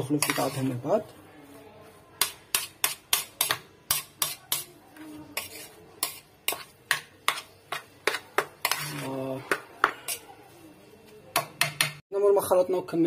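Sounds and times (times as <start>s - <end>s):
metal spoon scraping a bowl: 0.0s - 0.9s, 2.2s - 10.4s.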